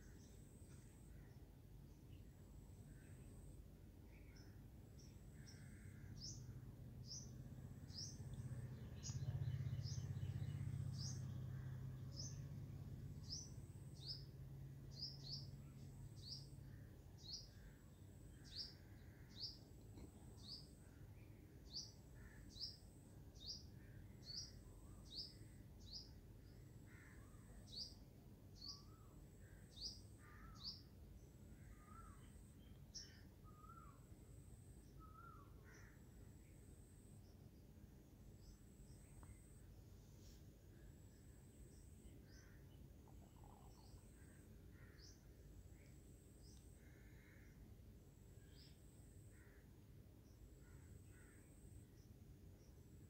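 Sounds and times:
lower bird chirps: 0:00.0 - 0:12.6, 0:13.2 - 0:47.6, 0:48.2 - 0:53.0
small bird chirping: 0:04.2 - 0:12.5, 0:13.2 - 0:20.8, 0:41.0 - 0:47.5.

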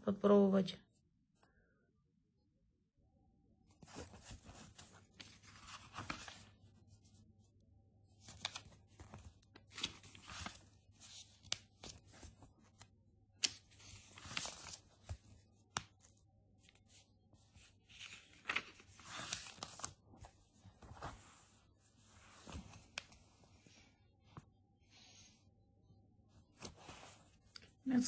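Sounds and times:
paper pages rustling: 0:03.7 - 0:07.2, 0:08.1 - 0:23.6, 0:26.4 - 0:27.8
pages snapping as they flip: 0:08.2 - 0:16.1, 0:17.9 - 0:20.0.

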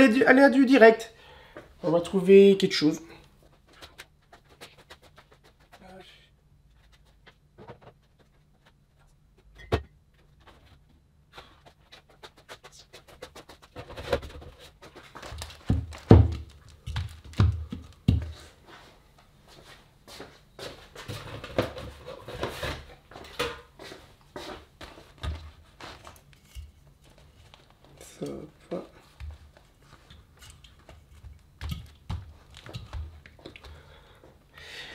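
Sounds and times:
objects knocking and thudding: 0:06.8 - 0:18.4, 0:21.0 - 0:23.7, 0:29.0 - 0:33.7.

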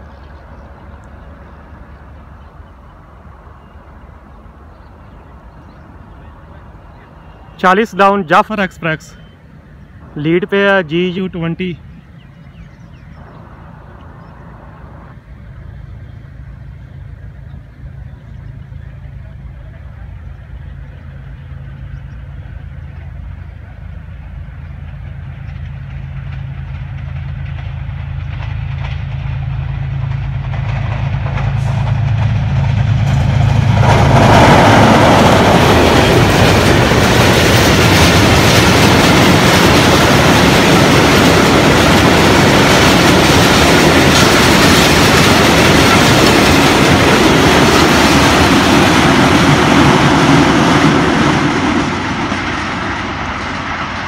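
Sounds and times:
diesel locomotive engine drone: 0:00.0 - 0:54.0
train wheels clattering on rails: 0:20.2 - 0:54.0.

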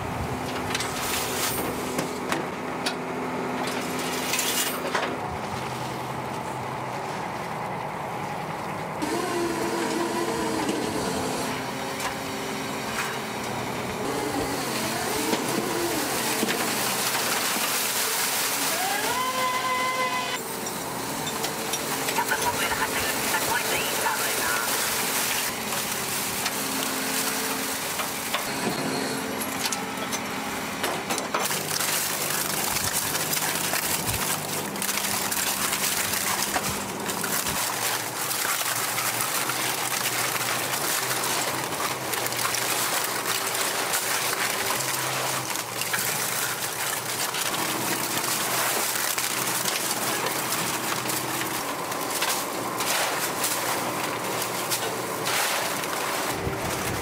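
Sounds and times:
low machinery hum: 0:00.0 - 0:57.0
rushing water: 0:14.0 - 0:28.4, 0:31.4 - 0:57.0.

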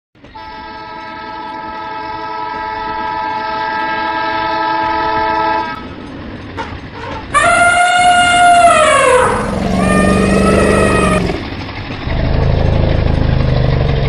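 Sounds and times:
train horn blast: 0:00.3 - 0:06.0, 0:06.6 - 0:11.6
low rumbling noise: 0:05.2 - 0:14.0.

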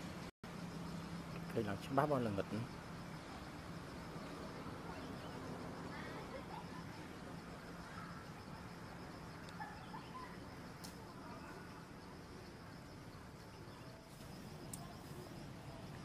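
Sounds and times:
faint high-pitched whine: 0:00.0 - 0:16.0
bird chirps: 0:09.5 - 0:10.4.

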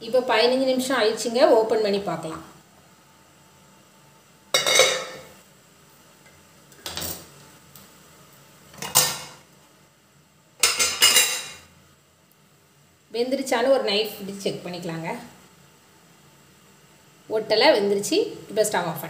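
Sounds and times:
cookware clanking: 0:04.6 - 0:05.3, 0:10.6 - 0:11.6.

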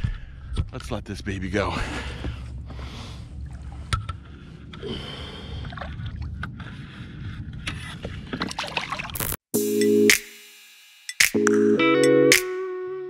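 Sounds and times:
water sloshing and splashing: 0:02.0 - 0:07.0, 0:08.1 - 0:09.4
music: 0:09.6 - 0:13.0.

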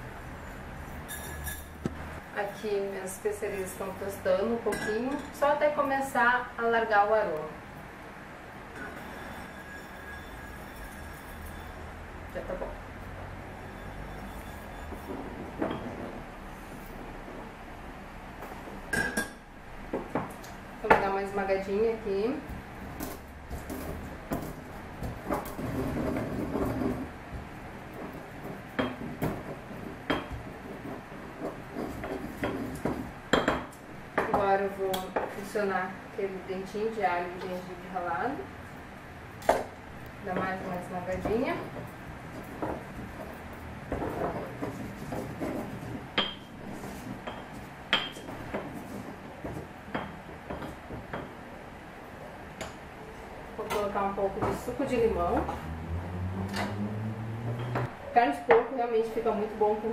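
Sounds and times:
pestle grinding spices: 0:22.5 - 0:34.0, 0:41.6 - 0:51.4.

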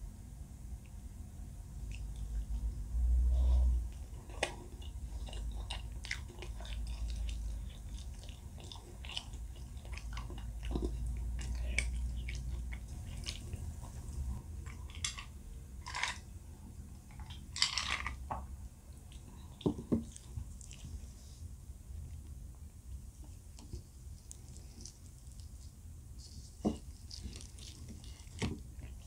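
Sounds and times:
chewing and biting food: 0:03.8 - 0:16.1, 0:19.1 - 0:21.1, 0:23.6 - 0:29.0.

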